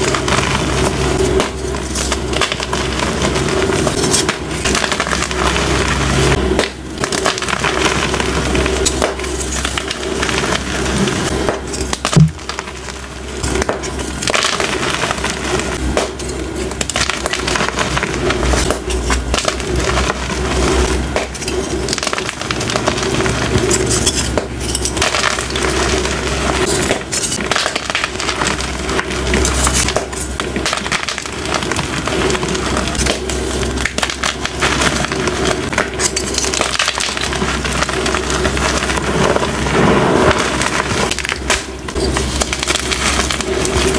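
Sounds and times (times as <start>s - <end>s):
chalk crunching and crackling: 0.0s - 43.9s
sharp loud knock: 12.2s - 12.4s.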